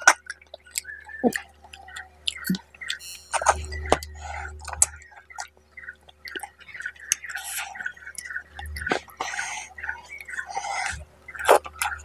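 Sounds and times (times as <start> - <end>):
sharp mouth clicks and smacks: 0.0 - 5.5, 6.2 - 9.4
wet chewing: 0.0 - 12.0.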